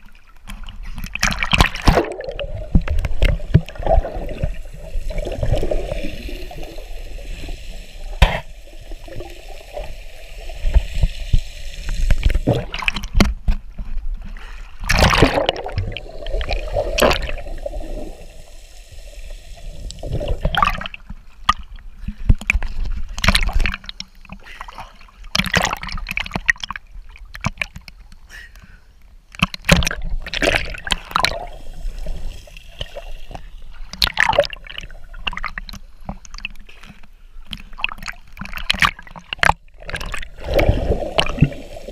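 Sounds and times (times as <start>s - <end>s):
sharp water splashes: 1.2s - 6.7s, 14.8s - 18.2s, 37.8s - 41.9s.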